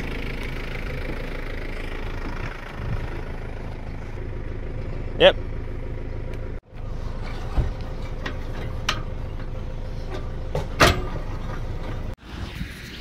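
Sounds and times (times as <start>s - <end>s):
engine idling: 0.0s - 12.2s
metal clanks of trailer coupling: 6.7s - 12.2s.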